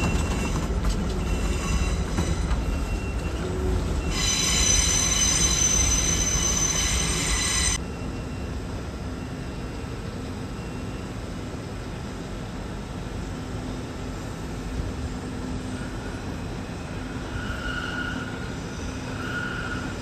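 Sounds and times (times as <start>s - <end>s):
high-pitched wheel squeal: 0.0s - 7.8s, 17.0s - 20.0s
train rumbling over rails: 0.0s - 20.0s.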